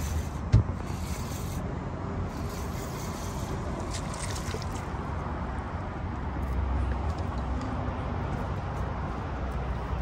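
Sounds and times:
fishing reel cranking: 2.3 - 3.6.

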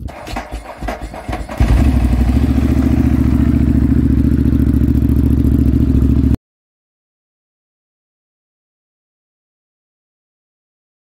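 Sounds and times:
motorcycle engine starting and running: 0.0 - 6.4.

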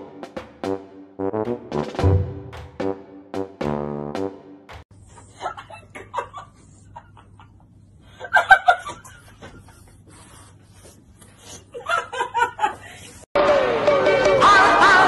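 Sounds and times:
person laughing: 11.5 - 13.2.

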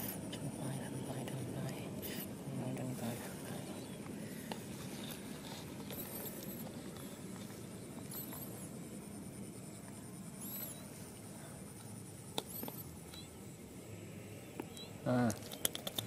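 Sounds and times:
baby monkey squeaking: 10.4 - 10.9.

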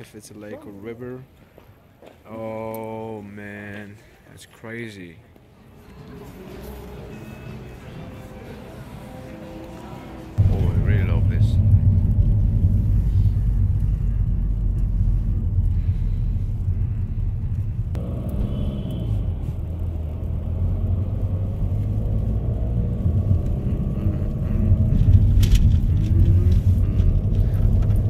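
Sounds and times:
high-pitched road noise: 5.6 - 28.0
car engine rumble from inside: 10.4 - 28.0.

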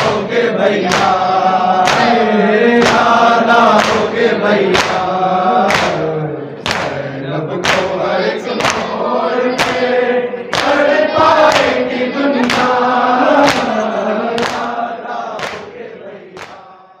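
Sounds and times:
crowd chanting in unison: 0.0 - 17.0
sharp beat strikes: 0.8 - 2.2, 2.8 - 4.1, 8.6 - 11.8, 12.4 - 14.8.

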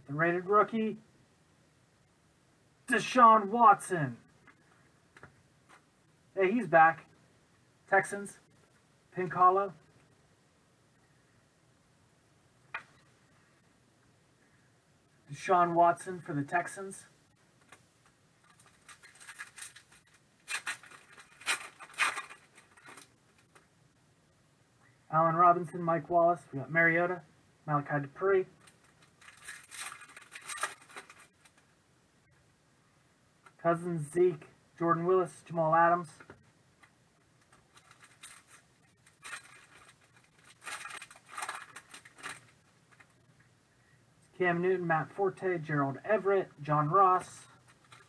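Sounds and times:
cards rustling: 18.4 - 23.6, 28.6 - 31.7, 37.4 - 43.2, 47.6 - 48.0
plastic wrapper crinkling and tearing: 18.4 - 23.6, 28.6 - 31.6, 37.4 - 43.2, 47.6 - 48.0.

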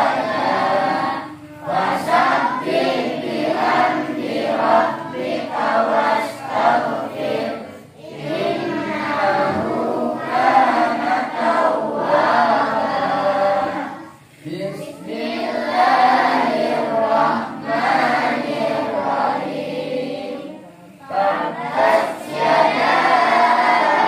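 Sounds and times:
children chanting in unison: 0.0 - 24.0.

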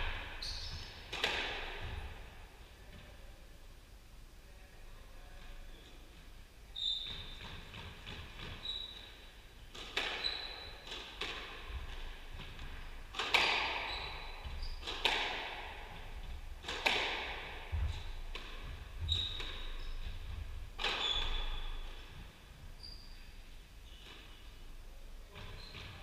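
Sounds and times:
squash ball cracks off walls: 13.1 - 13.9, 16.6 - 17.5
shoes squeaking on wooden floor: 13.7 - 15.0, 17.7 - 22.1.

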